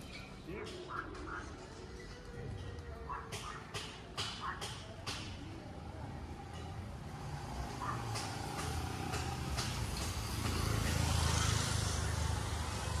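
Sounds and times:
vehicle passing: 5.7 - 13.0.

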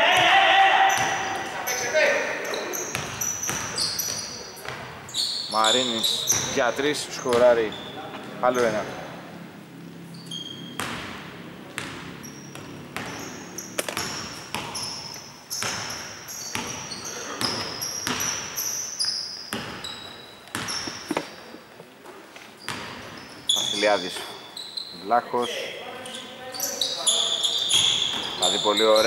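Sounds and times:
sneakers squeaking: 0.0 - 29.0
basketball bouncing on hardwood: 10.8 - 11.2, 13.8 - 14.8, 15.6 - 18.5.

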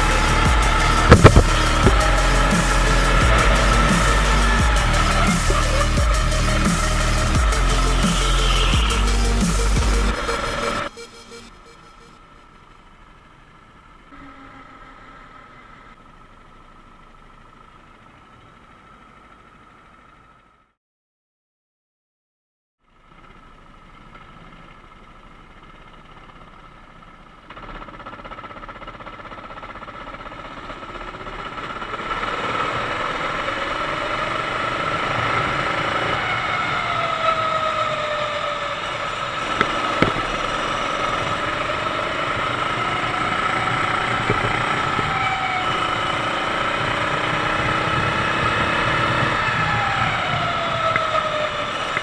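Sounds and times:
kart engine revving: 0.0 - 16.2, 27.5 - 52.0.

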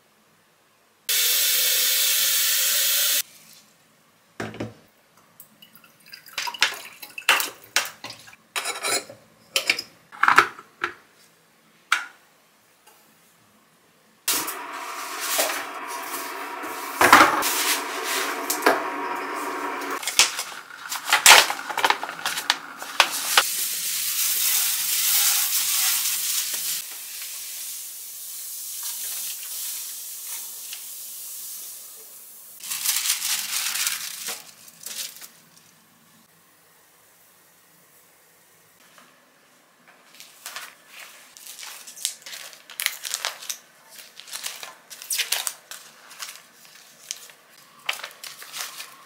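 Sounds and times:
hot water pouring into steel sink: 1.1 - 3.2, 14.3 - 26.8
plastic film crinkling: 32.6 - 35.5, 40.1 - 49.0.

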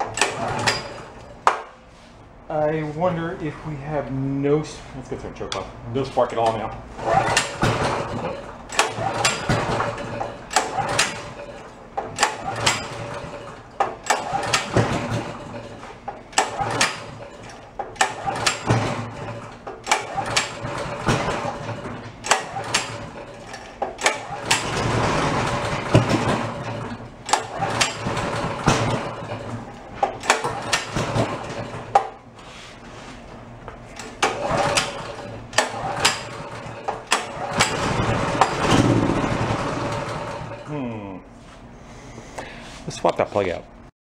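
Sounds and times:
engine pull-start cranking: 0.0 - 1.3, 7.0 - 32.2, 34.0 - 40.7.

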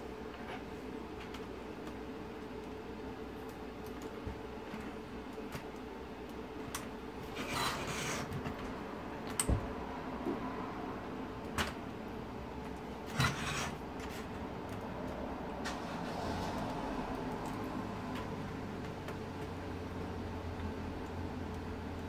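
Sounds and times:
metal spoon scraping plastic: 7.4 - 8.3.

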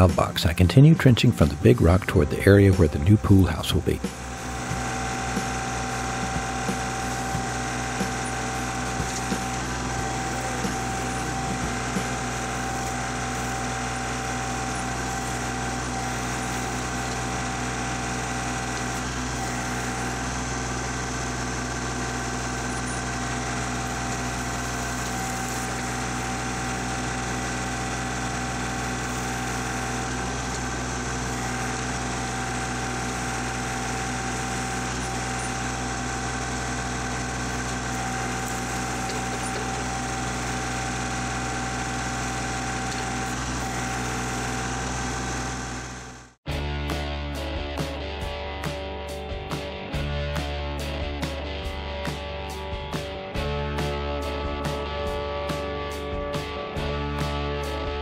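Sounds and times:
tractor diesel engine running: 0.0 - 46.4.

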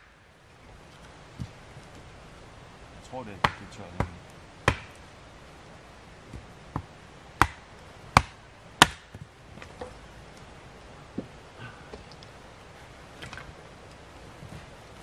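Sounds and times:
blade chopping wood: 3.4 - 5.0, 6.7 - 7.6, 8.2 - 9.2.

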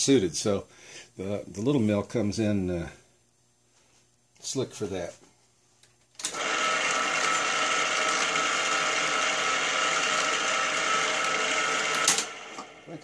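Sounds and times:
milling machine motor whirring: 6.2 - 13.0.

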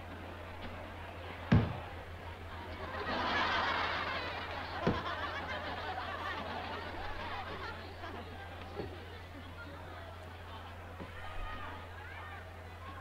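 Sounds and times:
steady low hum: 0.0 - 13.0
sharp knocks: 1.5 - 1.8
laughter: 2.5 - 8.5.

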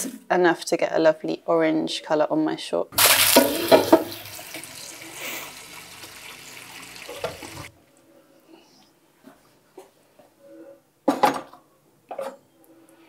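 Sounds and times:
tap water pouring into a pot: 3.0 - 7.7.

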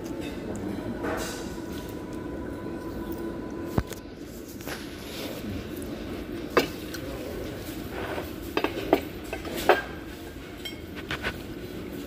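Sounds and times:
low room hum: 0.0 - 12.0
cutlery clinking on plates: 0.1 - 1.9, 6.5 - 11.4.

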